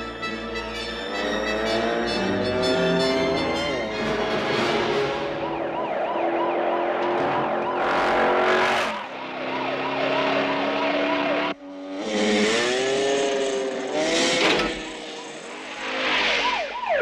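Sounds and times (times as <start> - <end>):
police siren wailing: 0.0 - 11.6, 14.2 - 17.0
racing vehicle engines: 0.0 - 17.0
motorcycle engine: 0.3 - 16.4.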